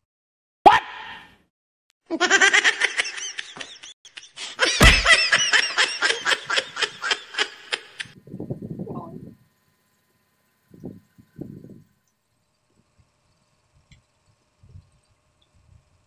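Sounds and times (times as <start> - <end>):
high-pitched laughter: 2.1 - 8.2
sharp thump: 4.8 - 5.4.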